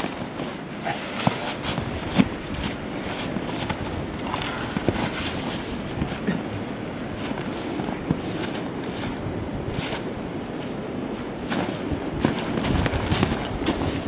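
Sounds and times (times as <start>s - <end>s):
footsteps crunching on snow and leaves: 0.0s - 6.3s, 7.0s - 14.0s.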